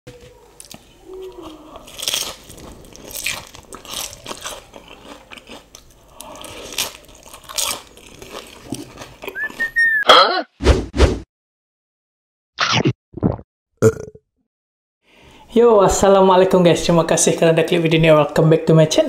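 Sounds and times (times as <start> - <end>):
chewing and slurping noodles: 1.5 - 9.8
high whistle-like tone: 9.4 - 10.1.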